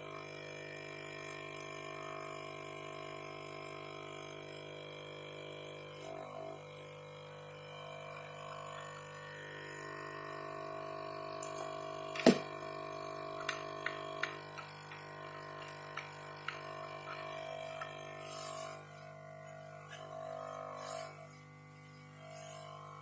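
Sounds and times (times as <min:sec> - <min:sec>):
droning hum: 0:05.3 - 0:23.0.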